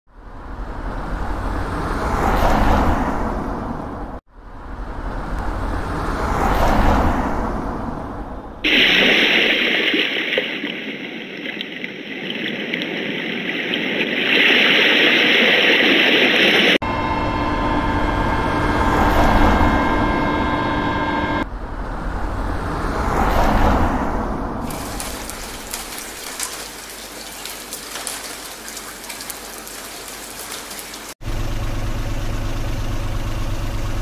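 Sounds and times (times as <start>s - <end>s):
cars passing by: 0.1s - 9.3s, 18.0s - 31.2s
steady rain: 24.7s - 31.2s.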